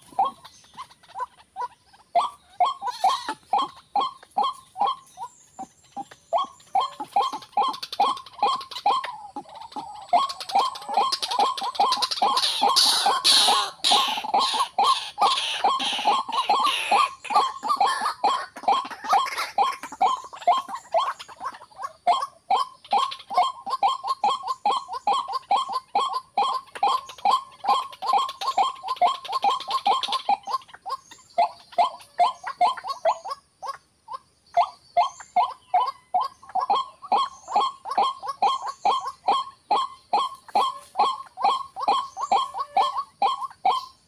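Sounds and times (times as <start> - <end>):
waterhen harsh calls: 0.0 - 5.3, 6.4 - 33.8, 35.1 - 44.0.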